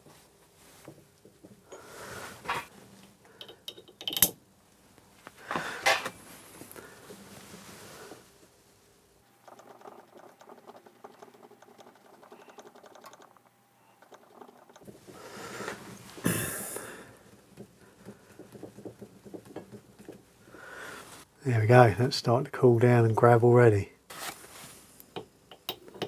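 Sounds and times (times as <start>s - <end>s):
metal engine parts clicking: 3.4s - 4.4s, 9.4s - 14.9s.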